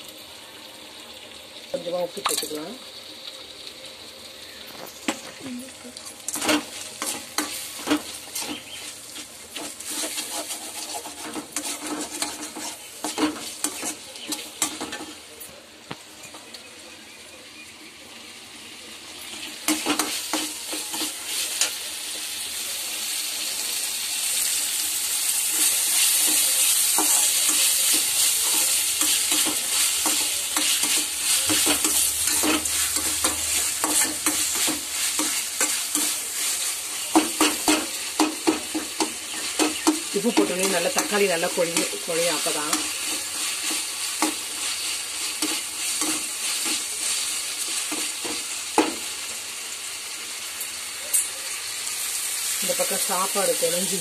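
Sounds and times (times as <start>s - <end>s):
vegetables sizzling in oil: 0.0s - 54.0s
metal spoon scraping a pan: 6.2s - 15.2s, 19.3s - 21.9s, 25.4s - 49.0s.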